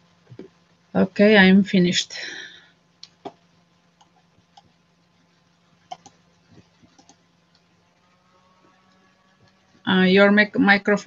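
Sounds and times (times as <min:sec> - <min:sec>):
low steady hum: 0:00.0 - 0:11.0
computer mouse clicks: 0:04.0 - 0:04.8, 0:05.8 - 0:07.7.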